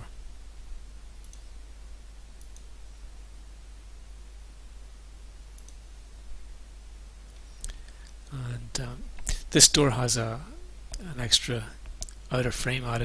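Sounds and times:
low electrical hum: 0.0 - 13.0
computer mouse clicks: 1.2 - 1.5, 2.4 - 2.7, 5.6 - 5.8.

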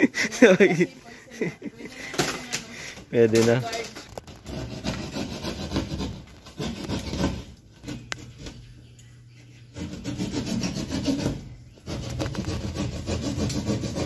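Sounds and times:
hand saw rasping through gypsum board: 4.4 - 7.5, 9.7 - 14.0.

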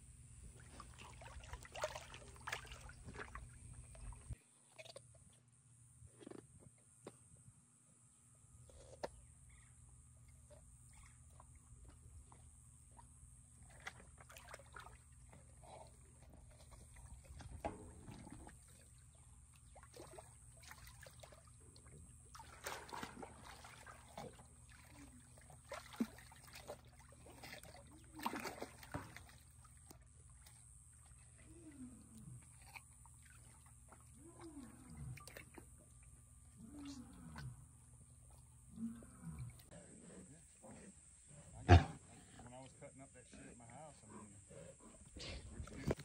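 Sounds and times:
water sloshing and splashing: 0.4 - 5.3, 10.2 - 37.5
big cat low calls: 36.5 - 37.6, 38.7 - 42.1.

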